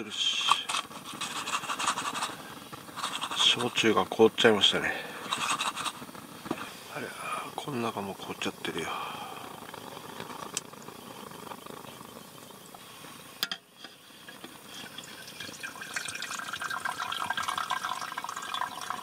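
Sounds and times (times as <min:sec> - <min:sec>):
water pouring into kettle: 0:14.2 - 0:19.0.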